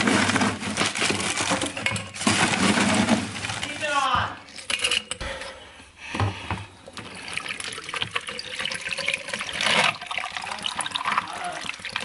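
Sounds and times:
water pouring into tumbler: 0:06.9 - 0:12.0.

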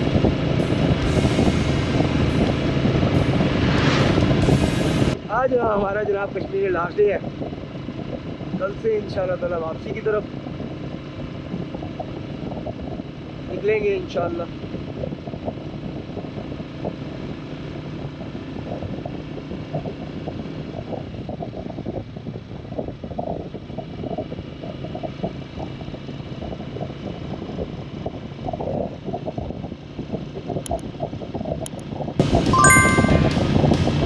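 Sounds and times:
motorcycle engine running: 0:00.0 - 0:05.2
wind and road noise: 0:00.0 - 0:34.0
music: 0:00.6 - 0:05.2, 0:32.2 - 0:34.0.

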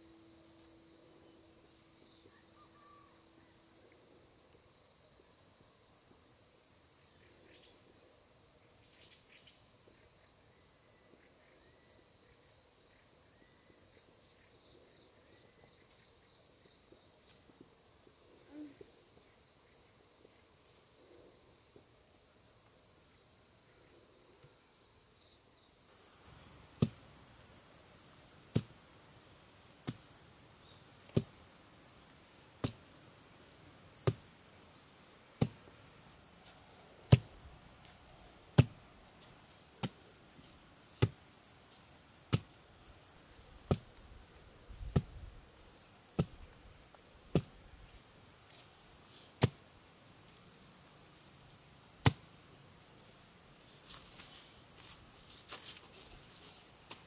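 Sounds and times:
insects trilling: 0:17.9 - 0:46.0, 0:46.8 - 0:57.0
tool chopping wood: 0:26.7 - 0:27.0, 0:28.5 - 0:28.8, 0:29.8 - 0:30.2, 0:31.0 - 0:31.4, 0:32.6 - 0:32.8, 0:34.0 - 0:34.2, 0:35.4 - 0:35.6, 0:37.1 - 0:37.3, 0:38.6 - 0:38.8, 0:43.6 - 0:43.9, 0:47.3 - 0:47.5, 0:52.0 - 0:52.2.

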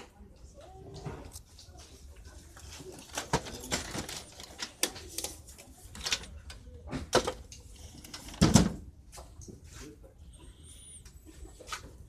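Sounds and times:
items clicking on metal shelf: 0:03.0 - 0:08.8.

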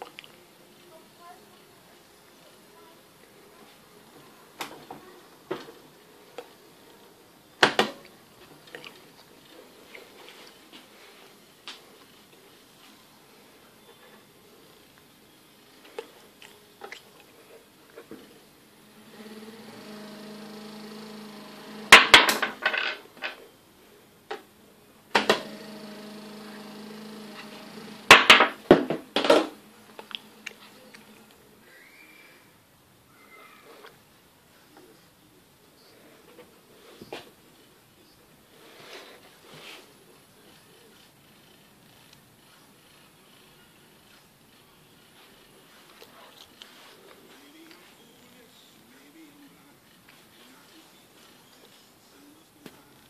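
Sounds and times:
conveyor motor humming: 0:18.7 - 0:22.2, 0:25.1 - 0:28.7.

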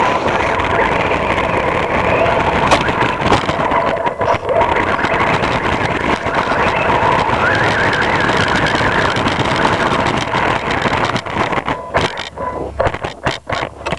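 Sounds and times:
drivetrain and tyre rush: 0:00.0 - 0:13.9
high electric motor whine: 0:00.0 - 0:13.9.

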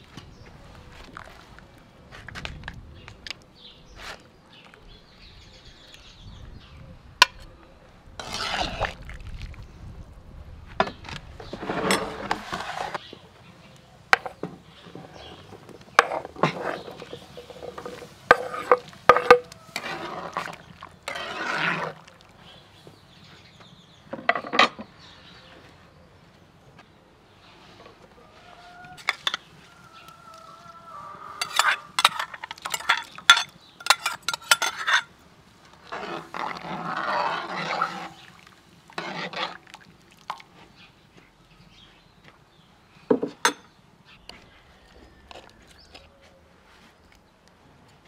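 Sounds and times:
metal ladle scraping a plate: 0:08.2 - 0:09.0, 0:11.4 - 0:13.0, 0:16.0 - 0:22.0, 0:29.0 - 0:29.5, 0:31.4 - 0:35.1, 0:35.8 - 0:38.3, 0:38.9 - 0:39.6.

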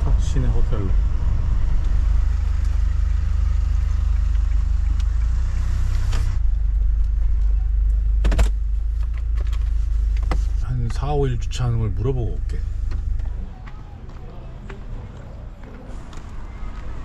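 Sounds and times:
van engine and road rumble: 0:00.0 - 0:17.0.

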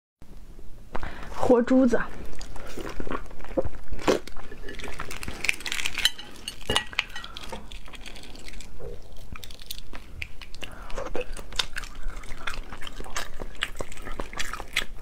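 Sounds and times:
eggshell cracking: 0:04.0 - 0:15.0.

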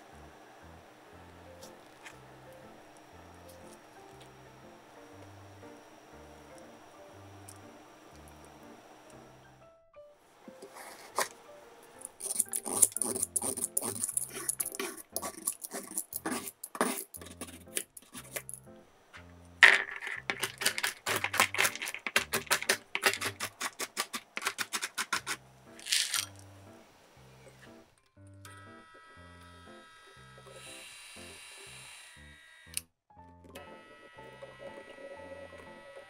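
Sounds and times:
soft background music: 0:00.0 - 0:23.5, 0:25.3 - 0:36.0
carrot scraping on board: 0:10.6 - 0:11.4, 0:12.2 - 0:18.5, 0:19.7 - 0:26.2
rapid knocks: 0:19.6 - 0:25.4
walnuts clattering on board: 0:19.6 - 0:26.4.

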